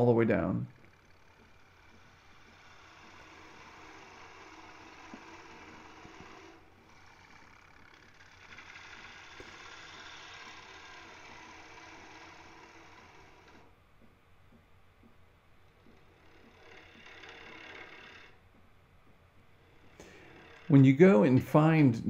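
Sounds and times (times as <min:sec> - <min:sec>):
gouge cutting wood hiss: 0:00.0 - 0:13.8, 0:15.6 - 0:18.4, 0:19.1 - 0:21.9
lathe motor hum: 0:00.0 - 0:22.0.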